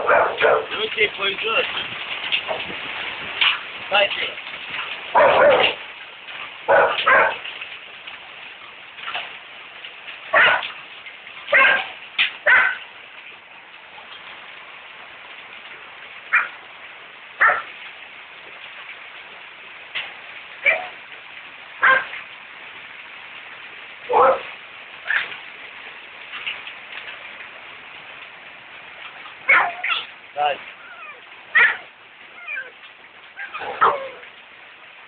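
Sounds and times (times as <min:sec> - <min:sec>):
rain and hail falling: 0:00.0 - 0:35.0
sharp loud hail impacts: 0:00.0 - 0:35.0.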